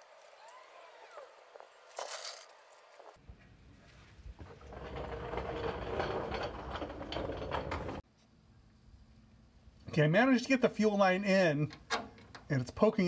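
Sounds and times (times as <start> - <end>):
metal rattling and scraping: 4.4 - 8.0.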